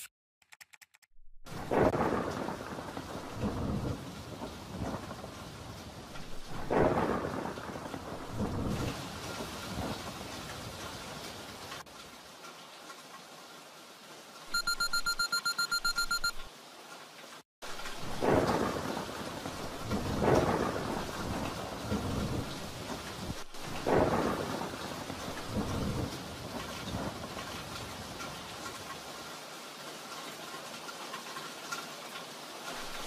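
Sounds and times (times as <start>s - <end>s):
thunder cracking and rolling: 1.5s - 11.8s, 17.8s - 29.0s
heavy rain: 1.5s - 14.6s, 16.5s - 33.0s
fast electronic beeping: 14.5s - 16.4s.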